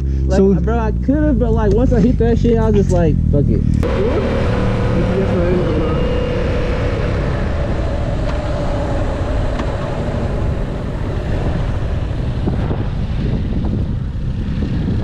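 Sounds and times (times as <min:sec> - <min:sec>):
motorcycle engine cruising: 0:00.0 - 0:15.0
road rumble: 0:00.0 - 0:15.0
wind rushing on microphone: 0:03.5 - 0:15.0.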